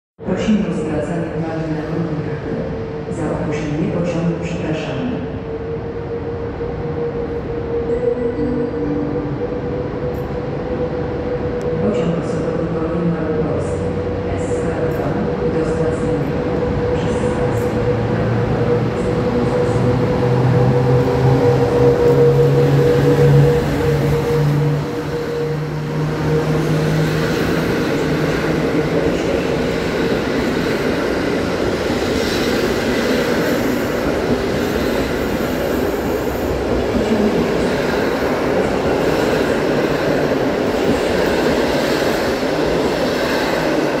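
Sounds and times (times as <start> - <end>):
electric locomotive hum: 0.3 - 44.0
train wheels rumbling and rattling: 13.4 - 44.0.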